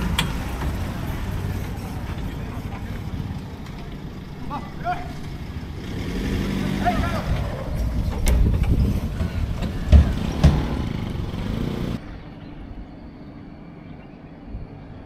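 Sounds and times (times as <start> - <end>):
vehicle engine rumbling: 0.0 - 15.0
heavy thumps: 7.9 - 11.4.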